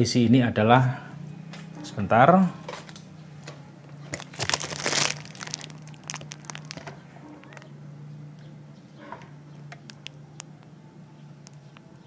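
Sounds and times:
plastic crinkling and clicks: 0:04.1 - 0:07.7, 0:09.7 - 0:10.6.

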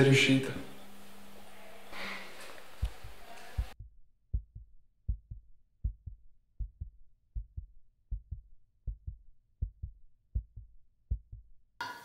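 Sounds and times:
heartbeat thumps: 0:02.7 - 0:11.6.

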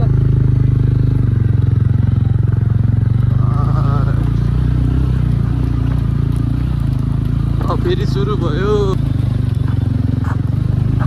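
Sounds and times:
motorcycle engine chugging: 0:00.0 - 0:11.0.

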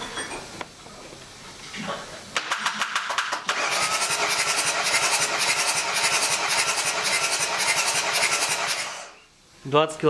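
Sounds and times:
engine cranked by starter: 0:02.4 - 0:09.1.

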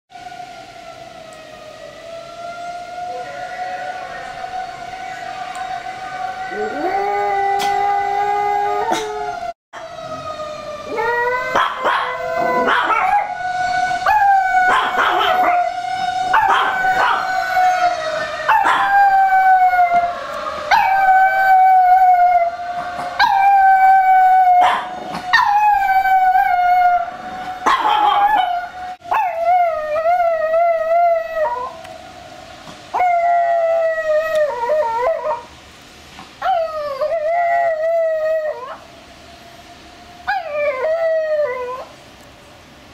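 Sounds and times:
dog howling: 0:06.4 - 0:10.2, 0:10.8 - 0:13.4, 0:14.0 - 0:31.8.

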